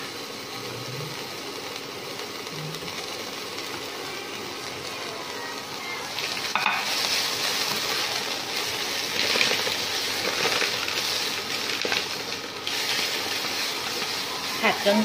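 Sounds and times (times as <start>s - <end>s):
food sizzling in hot oil: 0.0s - 15.0s
spatula knocking on pan: 6.5s - 6.9s.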